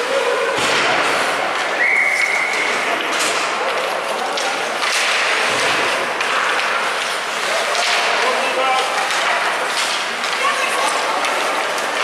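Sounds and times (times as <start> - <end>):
skates scraping on ice: 0.0 - 12.0
whistle: 1.8 - 2.8
hockey sticks knocking: 2.5 - 12.0.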